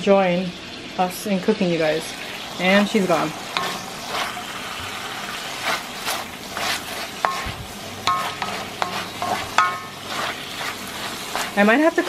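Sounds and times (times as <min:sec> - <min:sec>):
chicken sizzling in a frying pan: 0:00.0 - 0:12.0
wooden spoon scraping a pan: 0:02.9 - 0:12.0
spoon knocking: 0:03.6 - 0:03.9, 0:07.2 - 0:10.8.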